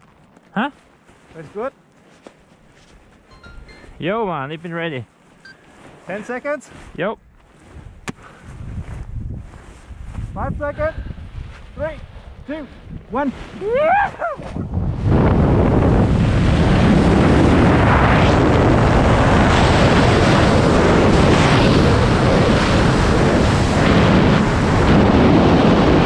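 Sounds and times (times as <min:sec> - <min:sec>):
loud wind rushing over microphone: 0:06.9 - 0:26.0.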